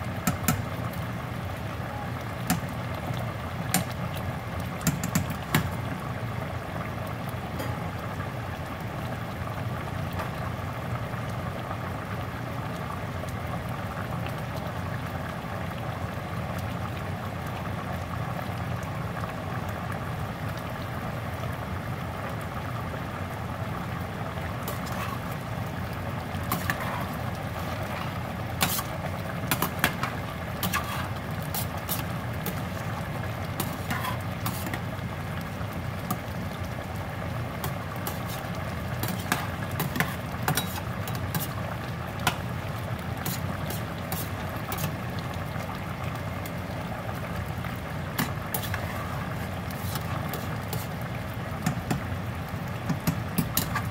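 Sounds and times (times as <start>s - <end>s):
stew bubbling in pot: 0.0s - 53.9s
spoon scraping pot: 24.7s - 25.4s, 26.5s - 32.6s, 33.6s - 34.8s, 39.0s - 41.6s, 48.2s - 50.9s.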